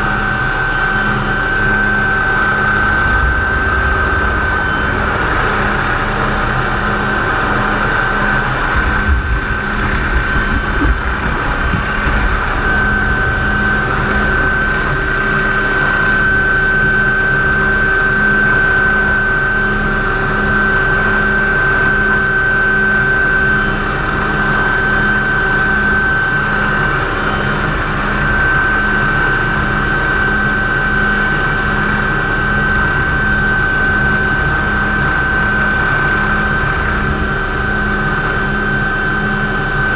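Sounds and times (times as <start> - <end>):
wind rumbles: 0.0 - 19.1, 30.0 - 39.9
helicopter engine and rotor noise: 0.0 - 39.9.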